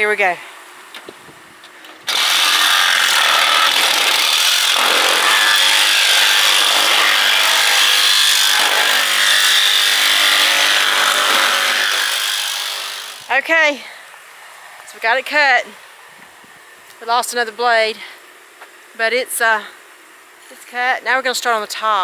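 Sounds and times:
jigsaw cutting plastic panel: 2.1 - 13.3.

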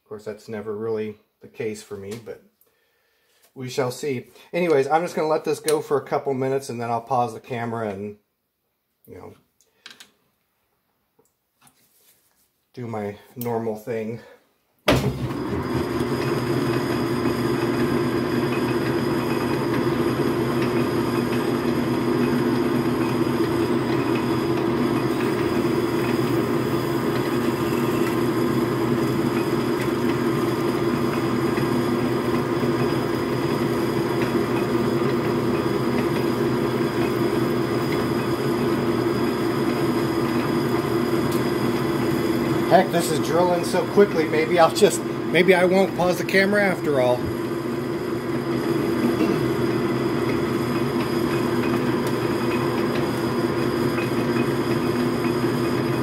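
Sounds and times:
motor hum: 15.0 - 56.0
metal lathe drilling: 15.2 - 56.0.

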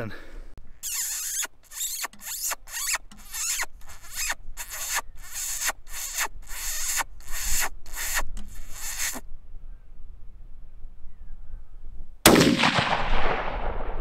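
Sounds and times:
shrill squealing whistle: 0.8 - 9.2.

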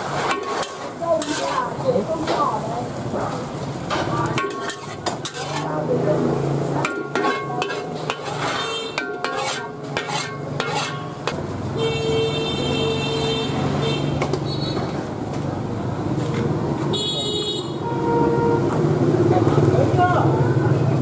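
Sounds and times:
metal ladle scraping a steel wok: 0.0 - 3.1, 3.7 - 11.4.

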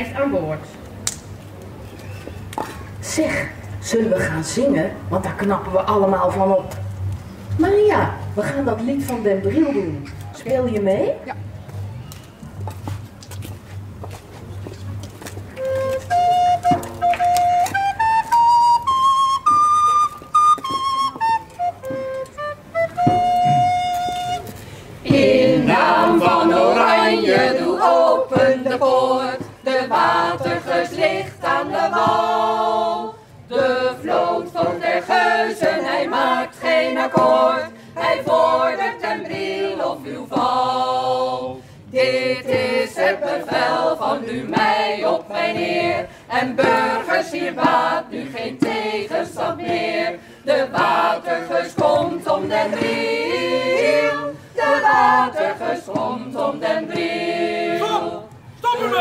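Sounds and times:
flute note: 15.5 - 24.6
group of people singing: 25.0 - 59.0.

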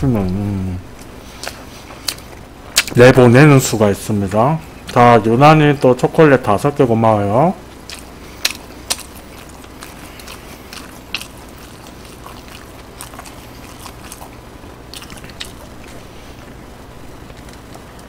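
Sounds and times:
steady low hum: 0.0 - 18.0
mouth clicks and smacks: 1.0 - 3.0, 7.8 - 16.0.

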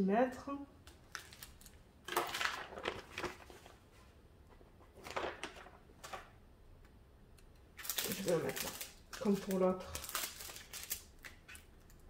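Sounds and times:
hands rustling items: 7.8 - 12.0.

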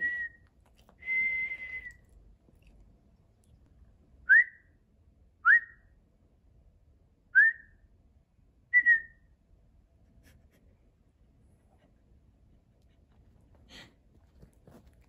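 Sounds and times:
person whistling: 1.0 - 2.0.

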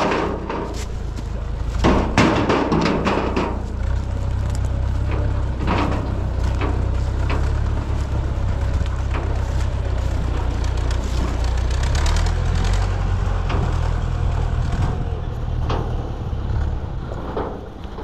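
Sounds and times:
stones clattering into steel trailer: 0.0 - 4.0.

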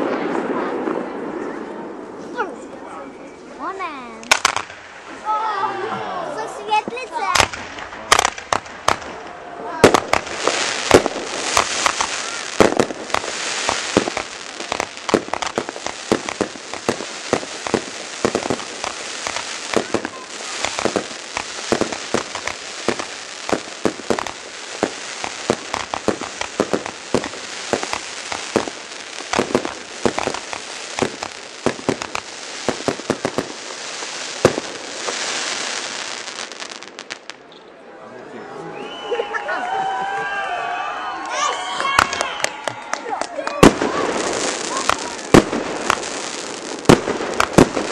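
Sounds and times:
fireworks bangs and crackles: 0.0 - 5.5, 6.5 - 37.6, 41.6 - 47.9
fireworks hissing rushes: 9.8 - 37.4, 43.6 - 47.9.

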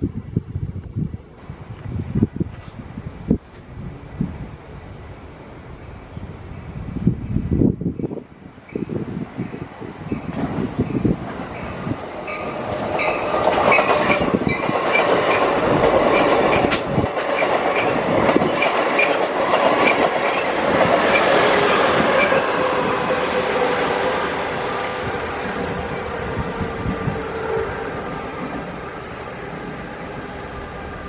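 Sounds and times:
train rumble: 0.0 - 31.0
train wheels clacking over rail joints: 10.2 - 22.9.

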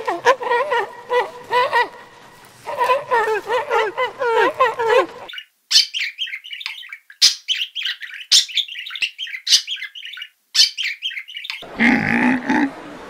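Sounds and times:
budgerigars chirping: 2.8 - 11.6.

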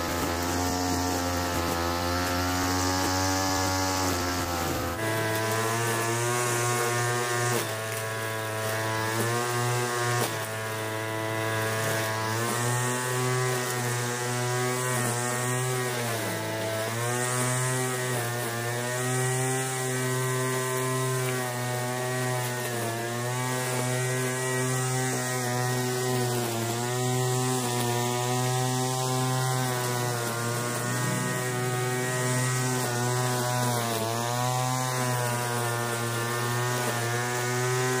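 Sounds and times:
small two-stroke engine running: 0.0 - 38.0.

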